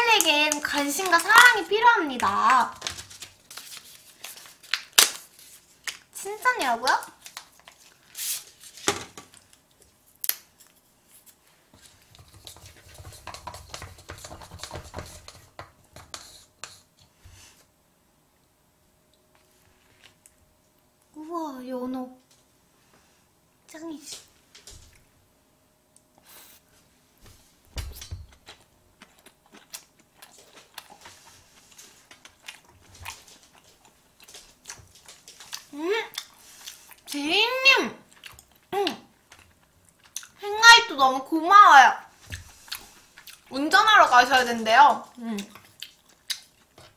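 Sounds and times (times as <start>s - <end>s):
chopsticks scraping and knocking: 10.6s - 17.1s
close-miked chewing: 28.4s - 37.2s, 38.0s - 40.4s, 42.3s - 43.7s, 45.0s - 46.9s.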